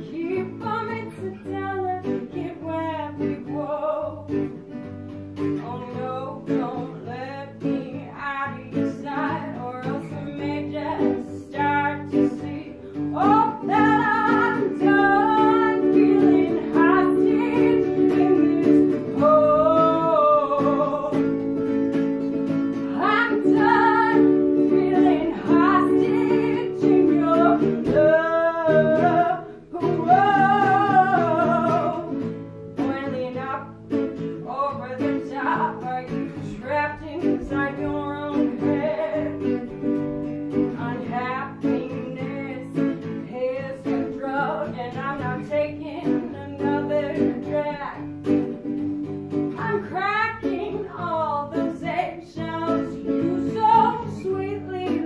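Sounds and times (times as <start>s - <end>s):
woman singing: 0.0s - 55.0s
electric guitar playing: 9.0s - 43.3s.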